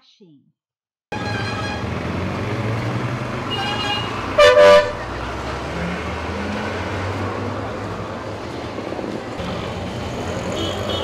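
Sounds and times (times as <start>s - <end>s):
vehicle horn honking: 1.1s - 2.0s, 3.5s - 5.1s, 10.5s - 11.0s
traffic engine rumble: 1.1s - 11.0s.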